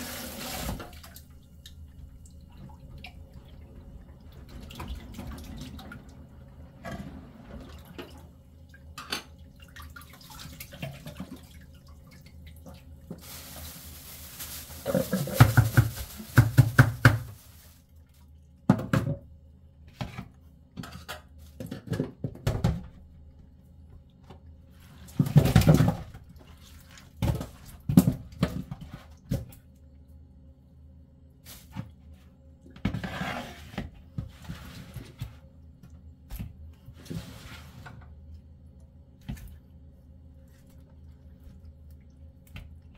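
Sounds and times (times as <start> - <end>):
fish slapping in plastic tub: 13.1 - 17.8, 25.1 - 29.6.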